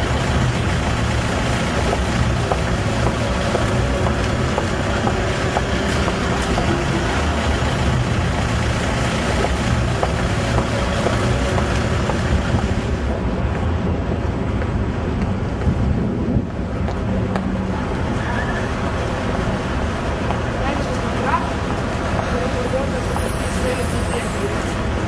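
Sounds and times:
running vehicle rumble: 0.0 - 25.0.

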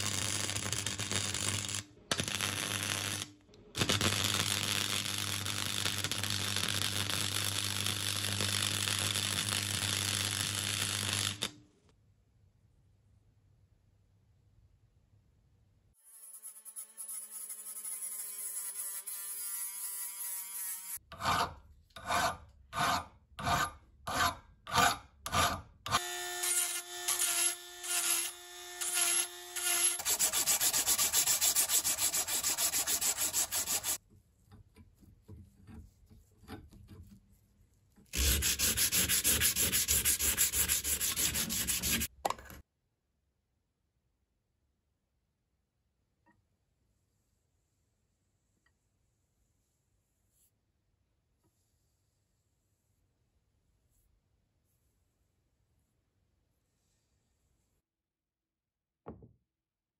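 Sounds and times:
abrasive paper rubbing on steel: 29.9 - 34.0, 38.1 - 42.1.

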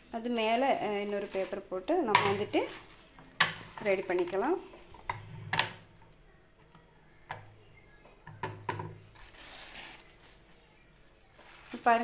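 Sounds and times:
plastic sheeting rustling: 0.0 - 4.9, 9.2 - 12.0.

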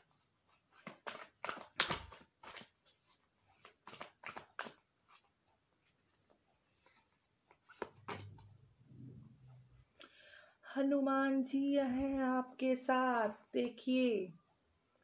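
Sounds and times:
cards being shuffled: 0.5 - 5.3, 6.7 - 8.5.

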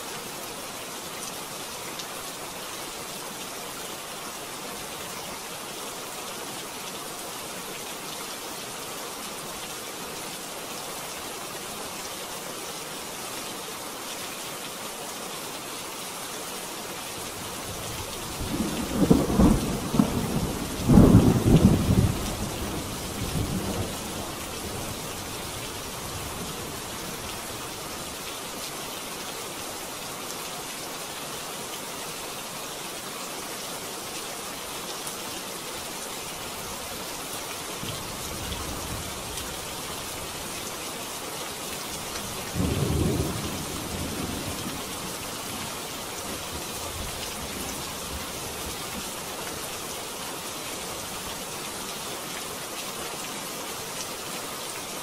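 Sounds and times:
heavy rain: 0.0 - 55.0
thunder rumbling: 42.6 - 44.6.

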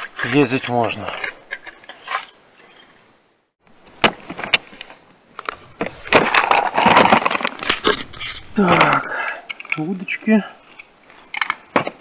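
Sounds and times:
box contents rattling: 5.4 - 9.9.

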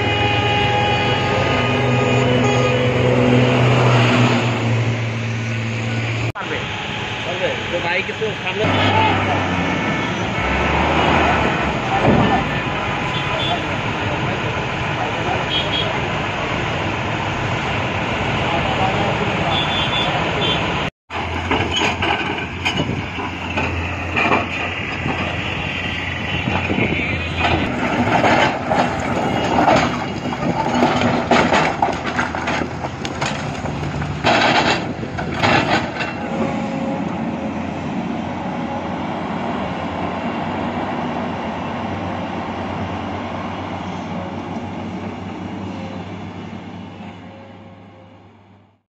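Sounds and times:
excavator engine running: 21.1 - 47.4
rocks banging into metal truck bed: 27.7 - 36.4.

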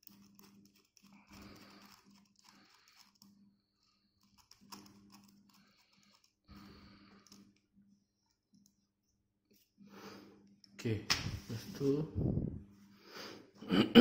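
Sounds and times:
faint plastic clicks and rattles: 0.0 - 9.1
low steady hum: 0.0 - 14.0.

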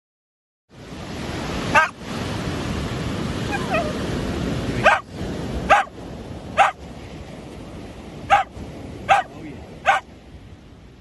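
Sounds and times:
surf washing: 0.7 - 11.0
dog barking: 1.7 - 2.0, 3.5 - 4.0, 4.8 - 5.1, 5.7 - 6.0, 6.6 - 6.8, 8.3 - 8.5, 9.1 - 10.1.

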